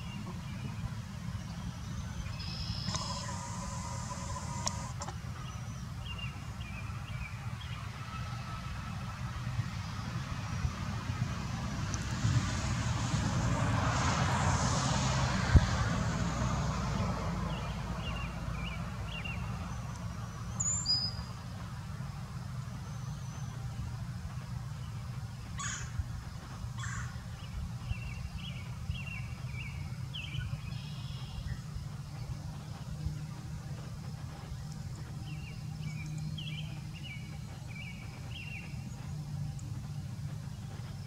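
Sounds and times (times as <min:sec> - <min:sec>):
low rumble of road traffic: 0:00.0 - 0:41.0
vehicle passing: 0:02.7 - 0:05.1, 0:10.8 - 0:20.6, 0:26.2 - 0:41.0.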